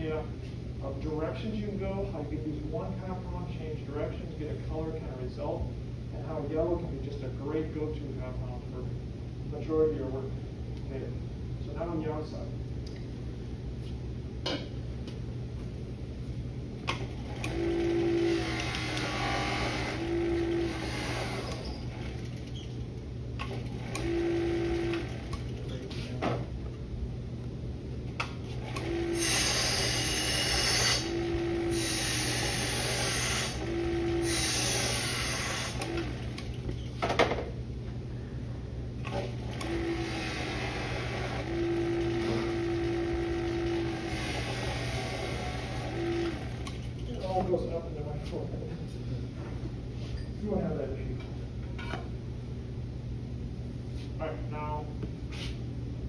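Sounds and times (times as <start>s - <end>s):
buffing motor humming: 16.9s - 22.5s, 23.4s - 25.6s, 28.5s - 36.6s, 39.1s - 47.0s
buffing wheel rasping: 17.4s - 22.6s, 28.5s - 36.5s, 39.5s - 46.6s.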